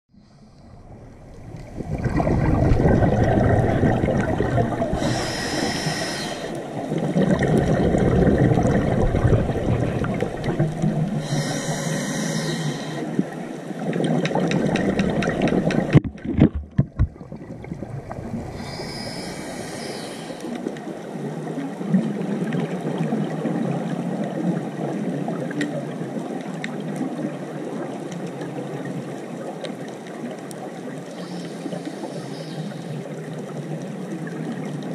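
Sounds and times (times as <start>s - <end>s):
muffled underwater rush: 0.1s - 28.0s
regulator breathing hiss: 4.9s - 6.7s, 11.2s - 13.3s, 18.6s - 20.6s, 31.1s - 33.0s.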